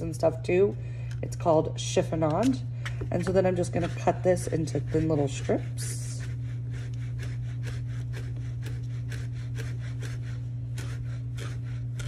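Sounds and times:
steady low hum: 0.0s - 12.0s
knife slicing on cutting board: 6.2s - 12.0s.

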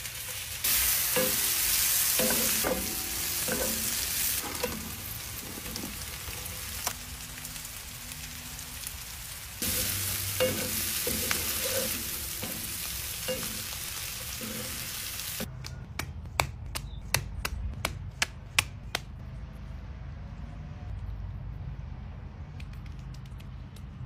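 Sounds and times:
food sizzling in a skillet: 0.0s - 15.5s
wooden spatula scraping: 9.6s - 12.8s.

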